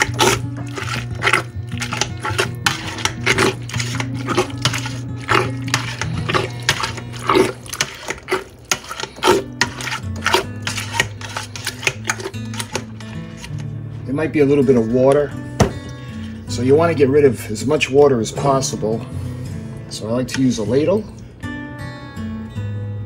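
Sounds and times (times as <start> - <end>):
background music with bass notes: 0.0 - 7.8, 9.2 - 23.0
potato masher scraping in pot: 0.0 - 13.8.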